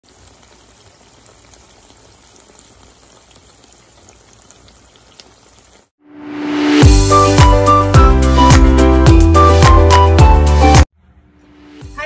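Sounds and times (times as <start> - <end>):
sauce bubbling in a pan: 0.0 - 6.0
music: 6.1 - 12.0.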